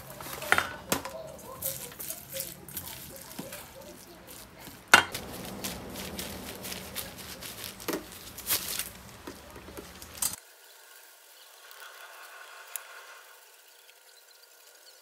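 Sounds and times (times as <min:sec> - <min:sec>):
dishes and utensils clinking: 0:00.0 - 0:10.4
low steady hum: 0:00.0 - 0:10.4.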